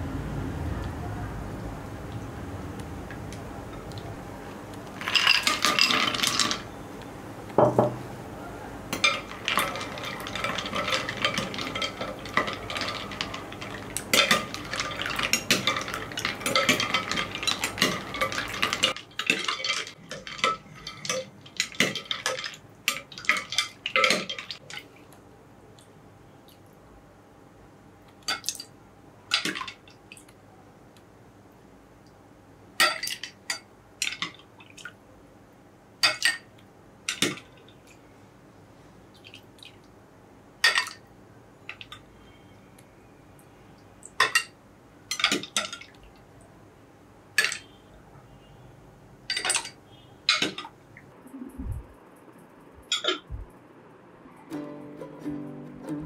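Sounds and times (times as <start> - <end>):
ice cubes clattering into bowl: 5.0 - 6.7, 9.0 - 24.6.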